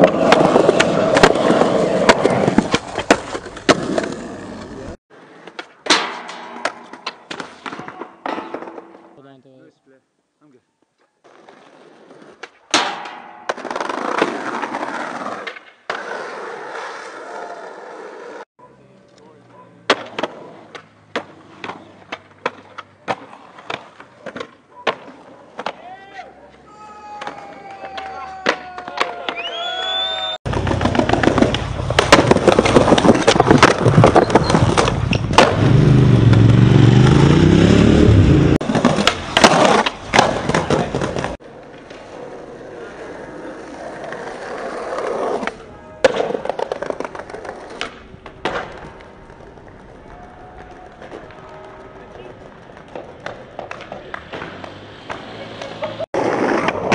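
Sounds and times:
skateboard wheels rolling: 0.0s - 9.1s, 11.0s - 18.4s, 19.8s - 56.9s
skateboard clacking on ground: 0.0s - 9.2s, 19.0s - 29.5s, 30.5s - 35.5s, 38.6s - 56.9s.

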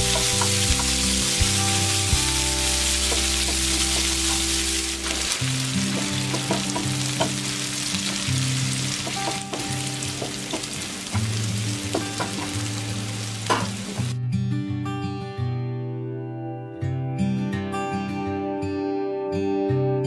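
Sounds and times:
onions sizzling in hot oil: 0.0s - 14.2s
soft background music: 0.0s - 20.0s.

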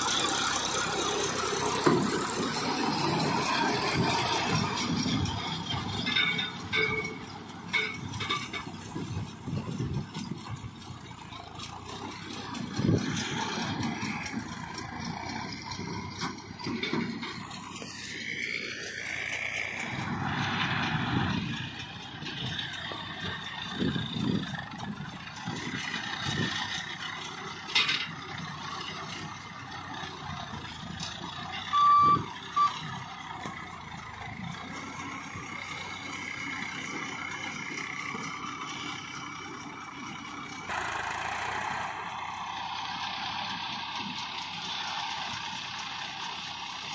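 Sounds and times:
tractor diesel engine running: 0.0s - 46.9s
short high beep: 31.7s - 32.8s.

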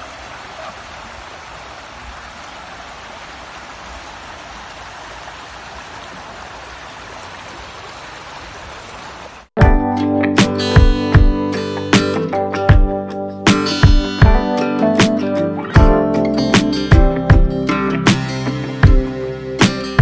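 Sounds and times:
river water running over stones: 0.0s - 9.5s.

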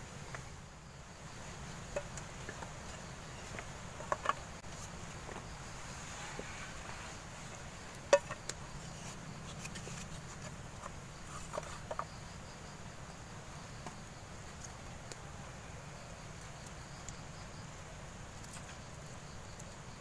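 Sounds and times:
insects chirring: 0.0s - 20.0s
wood and metal pot knocking: 1.9s - 4.5s, 8.1s - 8.6s.

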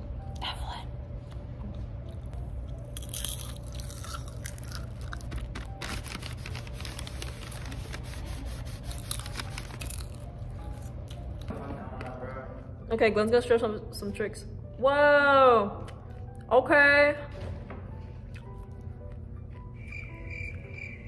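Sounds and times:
popcorn crunching: 2.1s - 11.5s.

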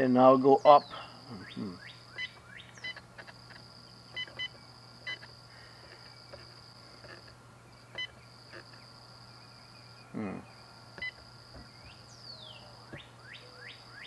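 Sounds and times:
short electronic key beeps: 2.2s - 3.0s, 4.2s - 5.3s.

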